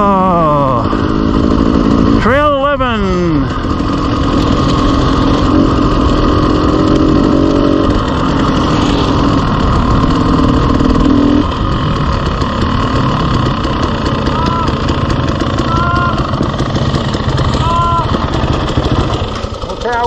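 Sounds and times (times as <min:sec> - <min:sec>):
dirt bike engine running: 0:00.0 - 0:20.0
rush of riding noise: 0:00.0 - 0:20.0.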